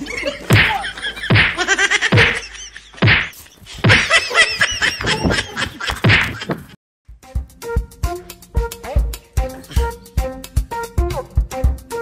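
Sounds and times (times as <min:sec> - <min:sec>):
people laughing: 0:00.0 - 0:03.0, 0:03.8 - 0:06.7
slaps: 0:00.5 - 0:02.4, 0:03.0 - 0:04.1, 0:05.3 - 0:06.7.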